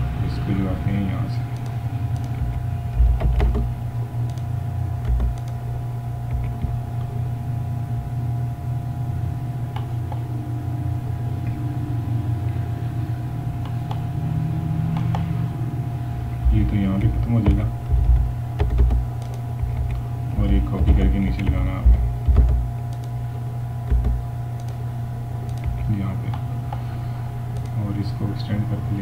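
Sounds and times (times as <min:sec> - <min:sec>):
low electrical hum: 0:00.0 - 0:29.0
computer mouse clicks: 0:01.5 - 0:05.6, 0:06.3 - 0:07.1, 0:13.6 - 0:14.1, 0:14.9 - 0:15.3, 0:17.3 - 0:20.0, 0:22.2 - 0:23.2, 0:23.9 - 0:24.8, 0:25.4 - 0:26.8, 0:27.6 - 0:27.8
low thumps: 0:02.4 - 0:03.8, 0:06.3 - 0:07.0, 0:16.4 - 0:22.8, 0:23.9 - 0:24.4.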